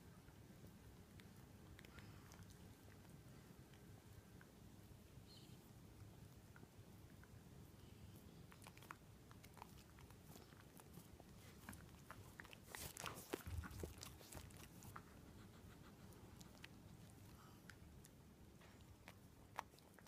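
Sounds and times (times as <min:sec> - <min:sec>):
dog licking paws: 0:08.4 - 0:20.0.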